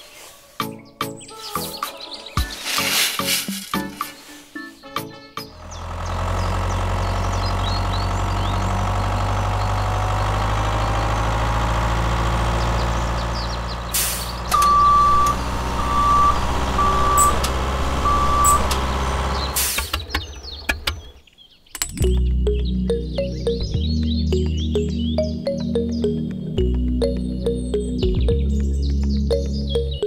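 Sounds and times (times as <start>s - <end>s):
heavy truck engine running: 5.5s - 21.2s
air brake hiss: 14.0s - 14.3s, 19.6s - 19.9s
reversing alarm beeping: 14.5s - 18.9s.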